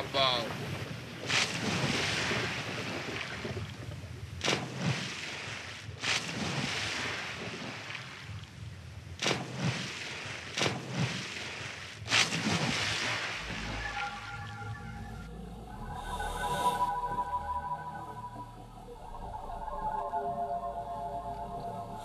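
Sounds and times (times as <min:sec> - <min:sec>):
water noise: 0:00.0 - 0:22.0
sharp slaps: 0:04.4 - 0:04.8, 0:09.2 - 0:09.8, 0:10.5 - 0:11.1.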